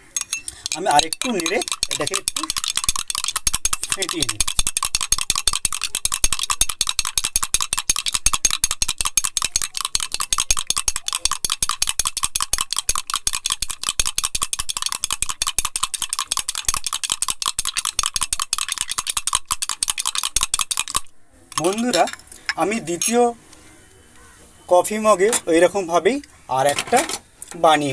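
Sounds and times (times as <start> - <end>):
spoon clicking against glass mug: 0.0 - 22.2.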